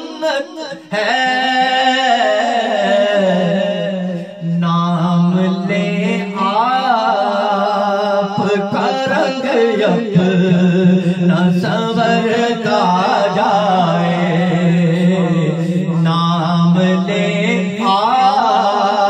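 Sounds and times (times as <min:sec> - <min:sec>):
man singing through microphone: 0:00.0 - 0:19.0.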